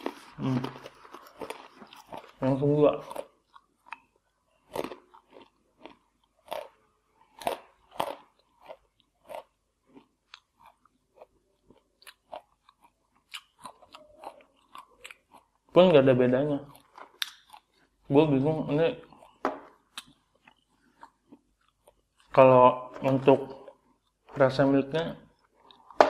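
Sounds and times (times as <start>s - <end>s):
crunching and chewing banana chip: 0.0s - 24.4s, 25.3s - 26.0s.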